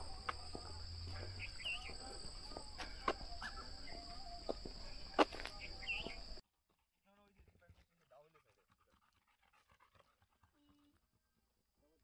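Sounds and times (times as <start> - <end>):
bird chirp: 0.0 - 6.4
crickets trilling: 0.0 - 6.4.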